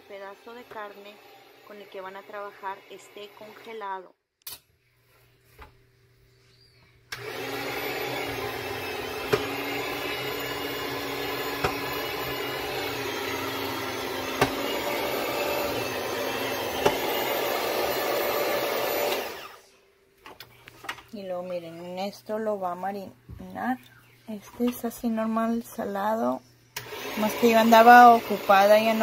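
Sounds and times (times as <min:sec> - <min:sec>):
food slicer motor running: 0:00.0 - 0:03.6, 0:07.1 - 0:19.7, 0:26.8 - 0:29.0
sharp click: 0:04.4 - 0:04.7.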